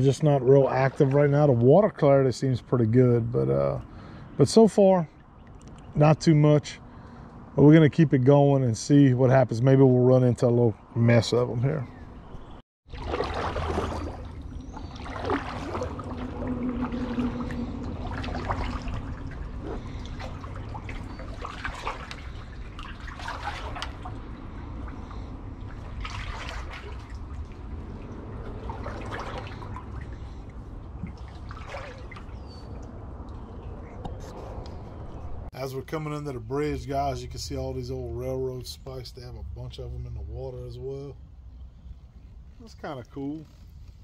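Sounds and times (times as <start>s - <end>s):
paddle splashing water: 0.0s - 1.5s, 12.8s - 33.0s
low rumble: 13.5s - 23.1s.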